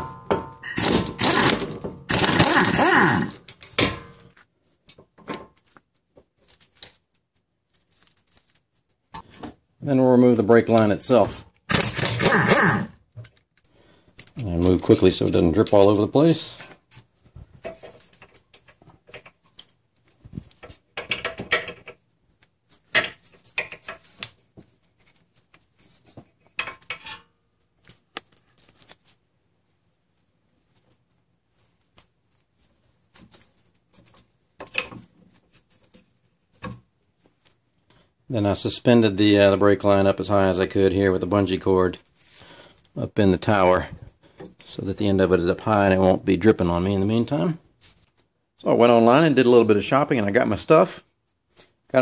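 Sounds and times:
cordless power tool whirring: 0.8s - 3.4s.

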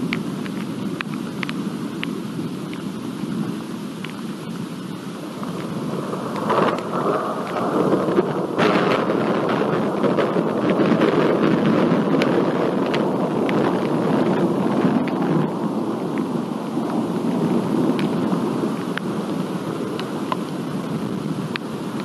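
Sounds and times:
thunder rumbling: 5.2s - 22.0s.

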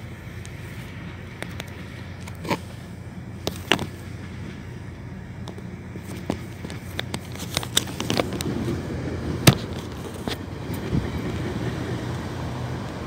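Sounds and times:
car engine humming: 0.0s - 13.0s
sharp clicks and knocks: 3.4s - 4.0s, 5.4s - 8.6s.

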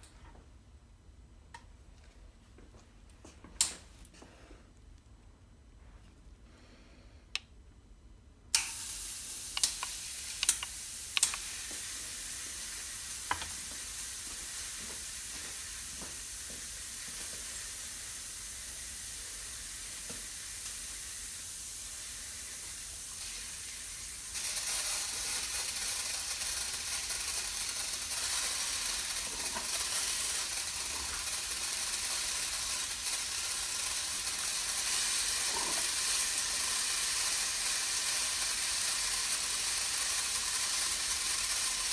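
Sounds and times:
compressed air hissing: 8.6s - 41.9s
sharp clicks: 9.5s - 11.4s.

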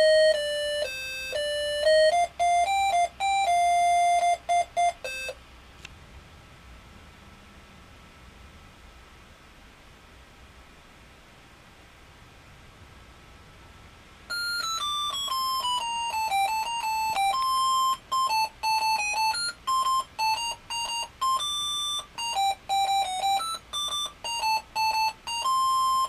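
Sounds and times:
electronic beeps playing a melody: 0.0s - 5.4s, 14.3s - 26.0s.

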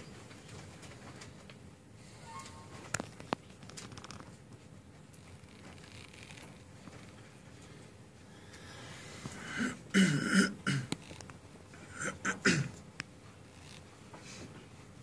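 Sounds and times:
person clearing throat: 9.4s - 11.0s, 11.8s - 12.8s
person coughing: 9.4s - 11.0s, 11.8s - 12.8s.

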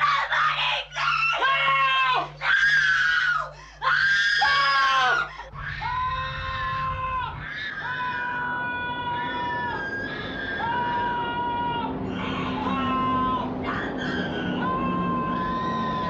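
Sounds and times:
long held cry: 0.0s - 16.0s
person screaming: 0.0s - 16.0s
low rumble: 5.4s - 16.0s
low throbbing pulse: 5.5s - 15.2s.

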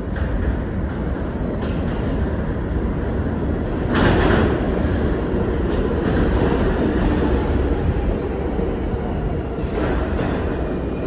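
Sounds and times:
subway train rumbling: 0.0s - 11.0s
wheels rattling on rails: 3.7s - 8.1s.

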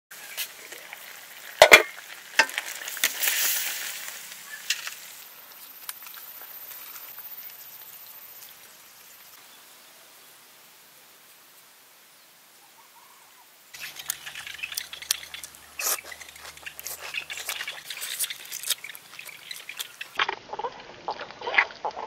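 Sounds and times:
food sizzling in a pan: 0.1s - 9.4s, 13.7s - 22.0s
metal pot lid clanking: 1.6s - 2.6s.

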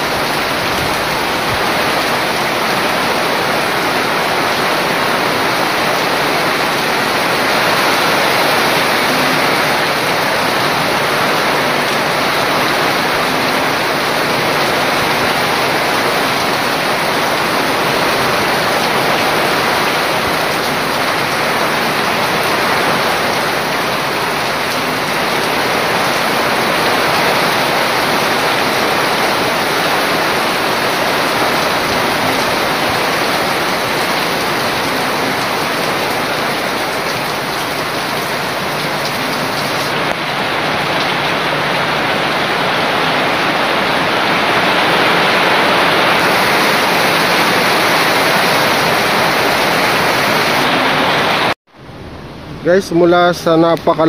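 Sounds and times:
heavy rain falling: 0.0s - 51.6s
water streaming off roof: 0.0s - 51.6s.

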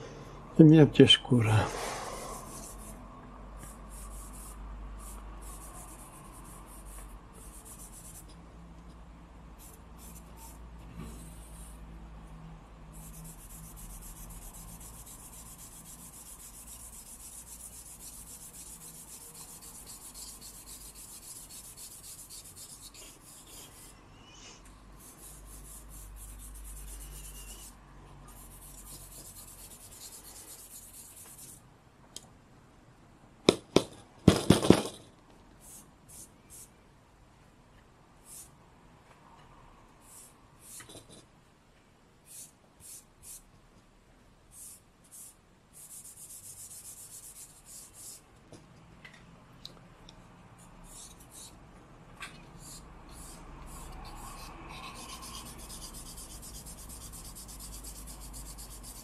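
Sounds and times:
charcoal scratching on paper: 2.0s - 3.0s, 3.6s - 8.3s, 9.6s - 11.8s, 13.0s - 24.0s, 25.0s - 31.6s, 40.0s - 41.2s, 42.3s - 43.4s, 44.5s - 48.2s, 50.6s - 51.6s, 52.5s - 59.0s.

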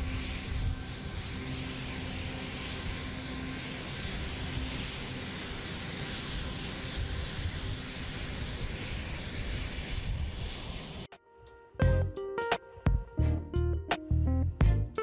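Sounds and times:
helicopter turbine engines roaring: 0.0s - 11.1s.

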